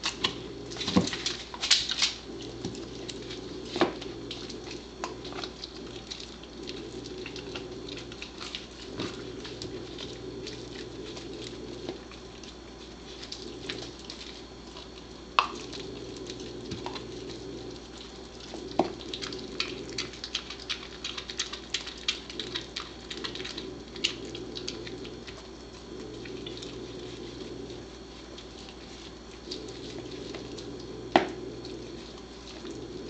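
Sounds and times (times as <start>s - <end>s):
dog gnawing meat off bone: 0.0s - 33.0s
teeth clicking on bone: 18.4s - 26.4s.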